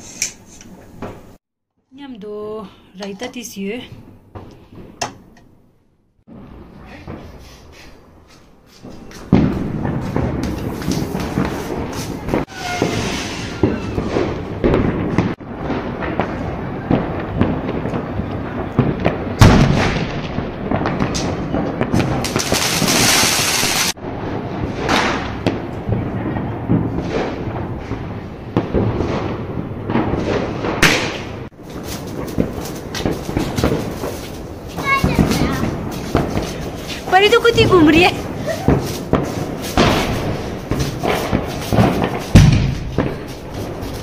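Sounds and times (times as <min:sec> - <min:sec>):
firecracker bangs: 0:08.8 - 0:44.0
loud firework hiss: 0:10.0 - 0:14.4, 0:22.0 - 0:24.0, 0:37.9 - 0:44.0
constant crackling: 0:14.1 - 0:44.0.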